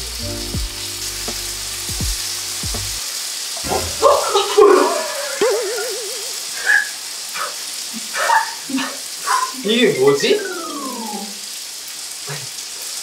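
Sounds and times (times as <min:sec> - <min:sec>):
background music: 0:00.0 - 0:03.0, 0:03.6 - 0:04.9
pasta sizzling in a pan: 0:00.0 - 0:13.0
wobbling tone: 0:03.6 - 0:05.0.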